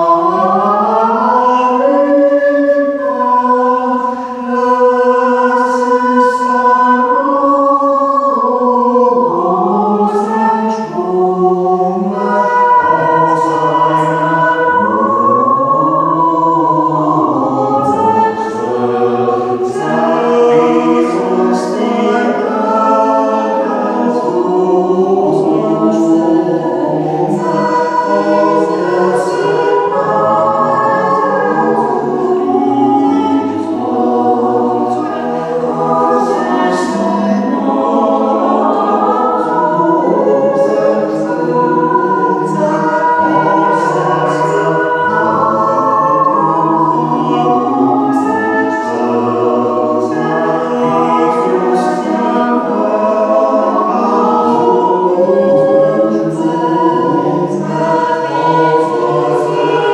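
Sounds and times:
choir singing: 0.0s - 59.9s.

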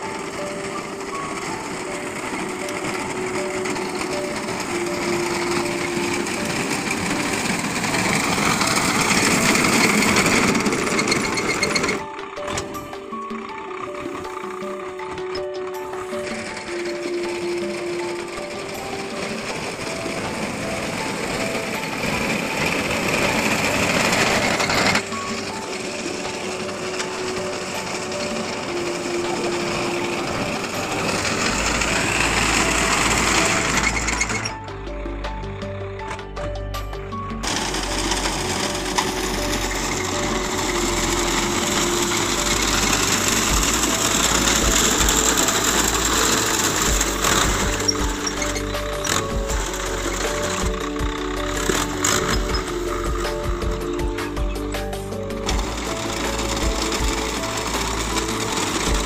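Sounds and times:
background music: 0.0s - 59.0s
tractor engine running: 0.0s - 59.0s
reaper cutting gear clatter: 37.4s - 54.0s.

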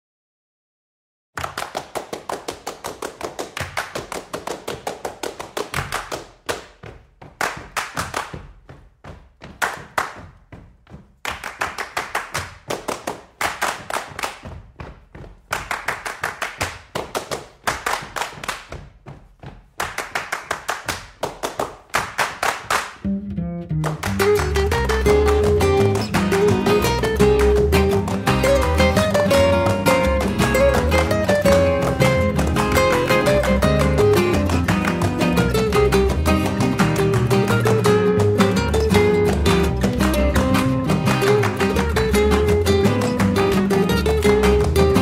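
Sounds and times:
fast rhythmic clapping and tapping: 1.4s - 23.1s, 23.7s - 45.0s.

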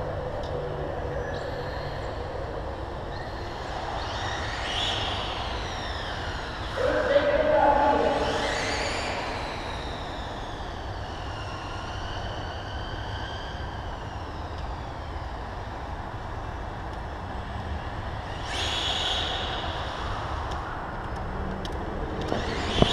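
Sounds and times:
steady low rumble: 0.0s - 4.5s
rc car motor whine: 22.2s - 22.9s.

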